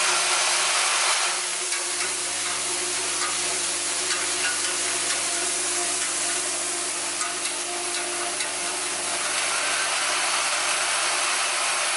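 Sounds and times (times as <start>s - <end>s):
machine hiss and hum: 0.0s - 11.9s.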